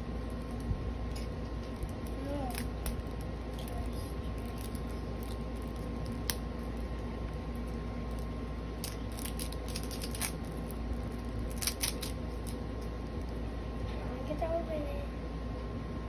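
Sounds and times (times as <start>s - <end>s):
low hum: 0.0s - 16.0s
plastic wrapping crinkling: 1.6s - 13.4s.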